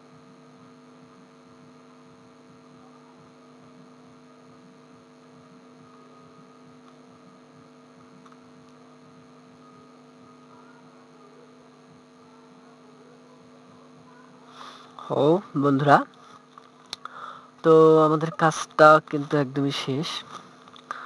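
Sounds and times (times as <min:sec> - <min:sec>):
faint mains hum: 0:00.0 - 0:21.0.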